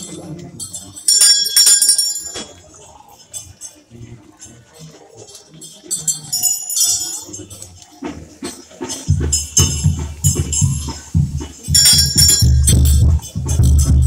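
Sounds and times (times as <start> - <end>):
crowd voices: 0.0 - 14.0
metallic clashing and jingling: 0.0 - 14.0.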